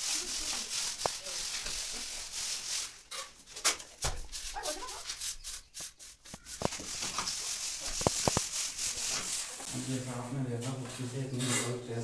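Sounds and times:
trowel scraping cement plaster: 4.3s - 9.7s.

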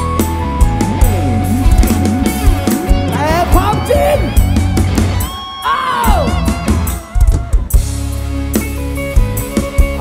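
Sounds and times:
band held chords: 0.0s - 10.0s
steady bass line: 0.0s - 10.0s
drum hits: 1.1s - 5.3s.

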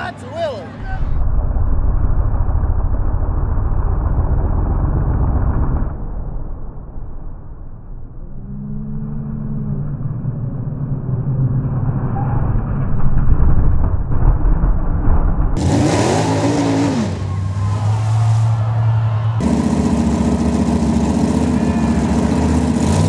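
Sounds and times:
truck engines running hard: 15.6s - 23.0s.

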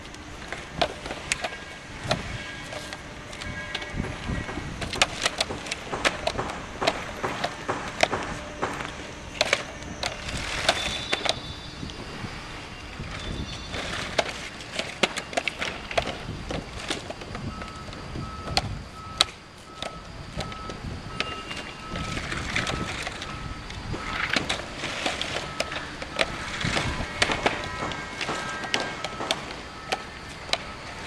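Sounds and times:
floor panels knocking on asphalt: 3.8s - 11.0s, 25.5s - 30.8s
steady electronic beeping: 17.4s - 31.0s.

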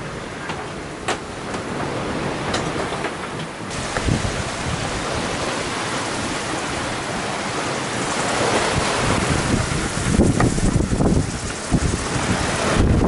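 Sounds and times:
waves breaking: 0.0s - 13.0s
wind rushing: 3.7s - 13.0s.

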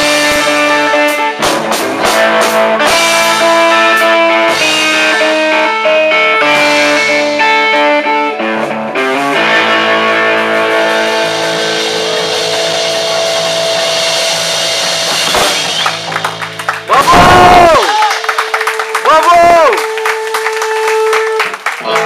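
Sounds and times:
rock band playing: 0.0s - 22.0s
electric guitar chord ringing: 2.4s - 16.9s.

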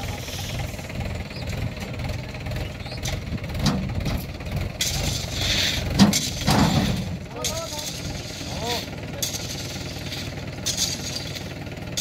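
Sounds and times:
gravel sliding hiss: 0.0s - 0.9s, 4.7s - 12.0s
diesel engine knocking: 0.0s - 10.7s.

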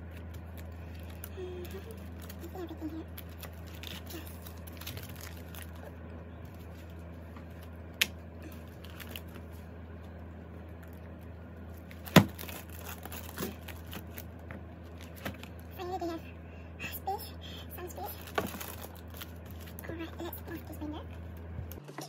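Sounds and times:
low steady hum: 0.0s - 22.0s
plastic pages rustling: 0.1s - 7.8s, 8.4s - 9.7s, 11.7s - 15.7s, 18.0s - 20.3s.

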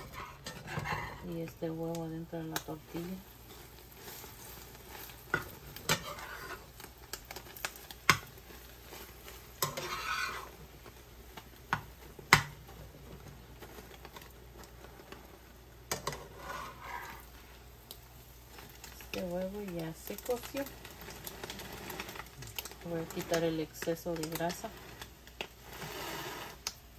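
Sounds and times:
food sizzling in oil: 0.0s - 26.9s
metal utensil tapping frying pan: 4.9s - 8.6s, 9.2s - 10.5s, 11.6s - 12.8s, 15.9s - 16.3s.

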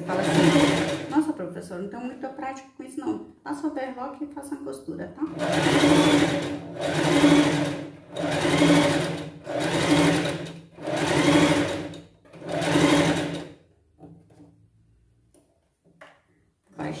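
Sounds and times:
sewing machine stitching: 0.0s - 1.2s, 5.3s - 13.6s.

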